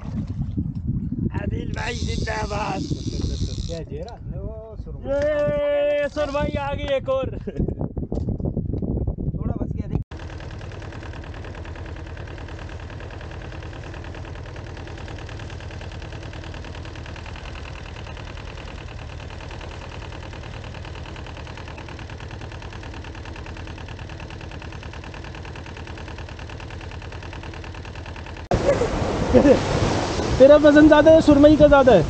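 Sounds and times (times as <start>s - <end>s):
boat engine running: 0.0s - 4.3s, 5.0s - 7.0s, 9.9s - 32.0s.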